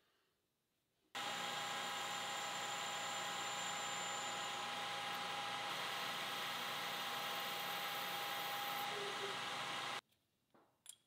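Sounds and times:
lathe machine whine: 0:01.2 - 0:10.0
metal lathe cutting hiss: 0:01.2 - 0:10.0.

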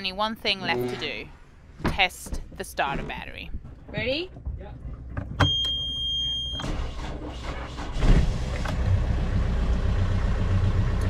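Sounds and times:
high alarm beep: 0:05.4 - 0:06.6
diesel engine idling: 0:07.1 - 0:11.0.

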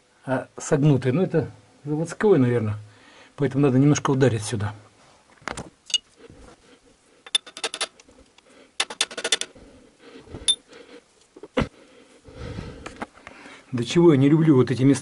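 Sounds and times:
metal taps and clinks: 0:07.3 - 0:08.0.

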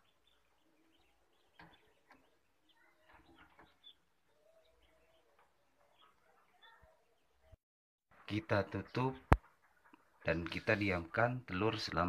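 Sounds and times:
faint bird chirps: 0:00.0 - 0:07.6.

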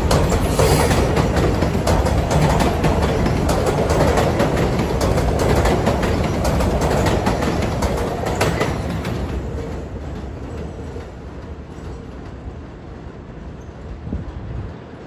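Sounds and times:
subway train wheels clicking: 0:00.0 - 0:15.0.

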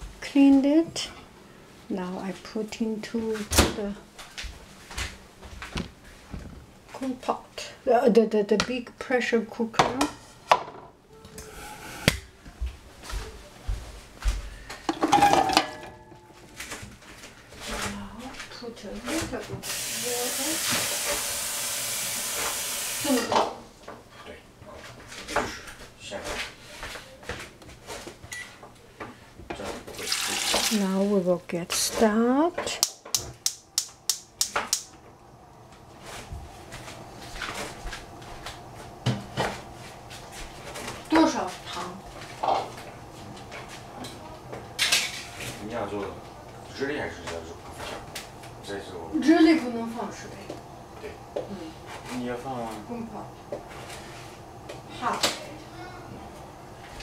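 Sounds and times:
gas burner hissing: 0:11.4 - 0:12.4, 0:19.6 - 0:23.5, 0:32.8 - 0:41.5
metal pot ringing: 0:15.0 - 0:16.4
gas stove igniter clicking: 0:32.8 - 0:34.9.

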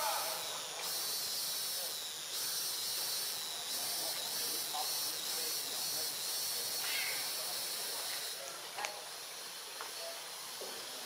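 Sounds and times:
pulsing high-pitched hiss: 0:00.0 - 0:11.0.

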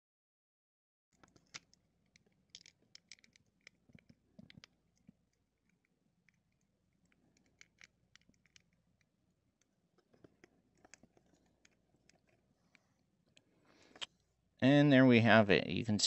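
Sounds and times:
plastic action figure clicks and scrapes: 0:01.2 - 0:05.2, 0:06.5 - 0:08.8.

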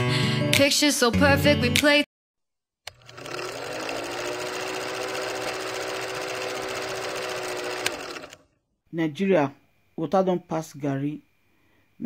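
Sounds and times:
film projector clattering: 0:02.9 - 0:08.4.

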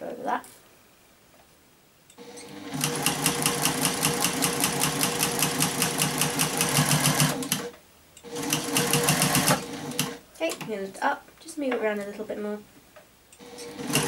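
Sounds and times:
sewing machine stitching clatter: 0:02.2 - 0:07.7, 0:08.3 - 0:10.2, 0:13.4 - 0:14.0.

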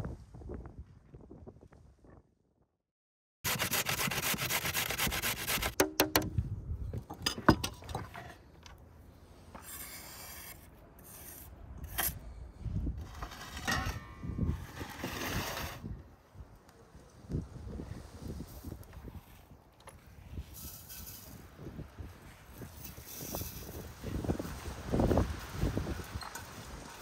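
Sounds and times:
knife knocking on board: 0:05.8 - 0:06.4.

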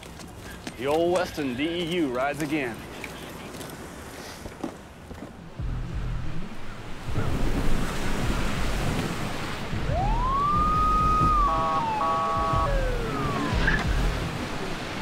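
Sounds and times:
low rumble of car engines: 0:05.3 - 0:07.8
police siren warbling: 0:09.8 - 0:14.2.

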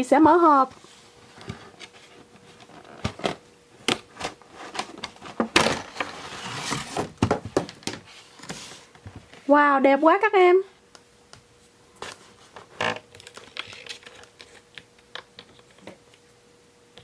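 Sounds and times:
plastic and cardboard crinkling: 0:12.0 - 0:16.0.

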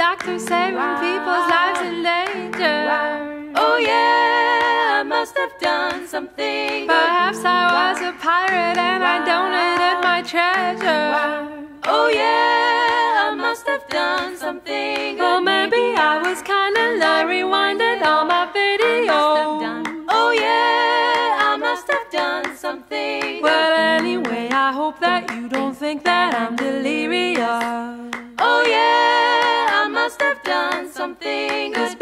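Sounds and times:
a cappella group singing: 0:00.0 - 0:32.0.

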